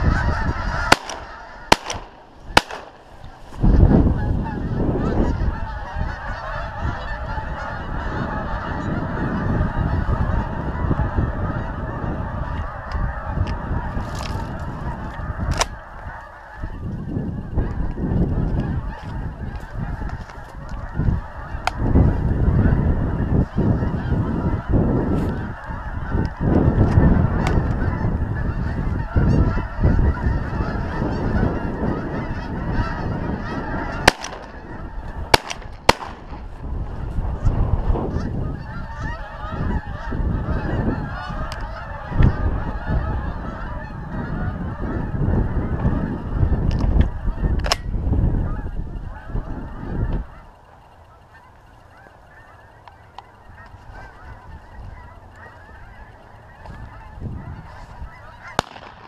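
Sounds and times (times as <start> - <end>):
geese honking: 0.0 - 59.0
wind rumble on microphone: 0.0 - 59.0
shotgun shots: 0.8 - 3.2, 34.1 - 34.6, 35.3 - 36.4, 58.6 - 59.0.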